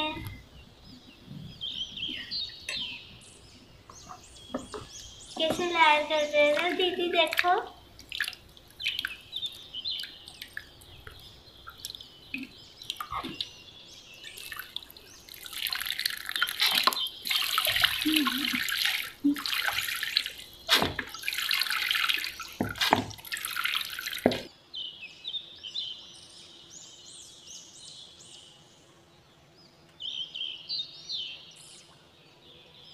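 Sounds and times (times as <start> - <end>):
water dripping: 3.9 - 24.5
water splashing and pouring: 5.4 - 13.6, 14.2 - 24.5.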